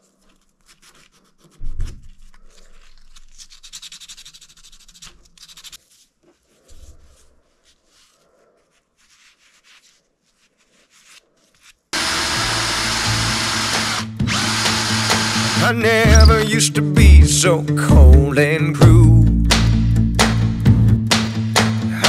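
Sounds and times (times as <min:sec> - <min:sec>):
soft cloth rubbing: 0:00.0 - 0:11.9
wood rubbing on sandpaper: 0:00.0 - 0:16.5.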